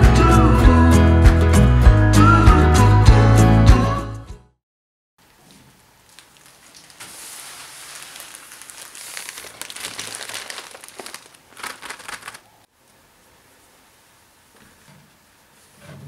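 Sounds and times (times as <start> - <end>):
plastic bag crinkling: 6.0 - 12.7.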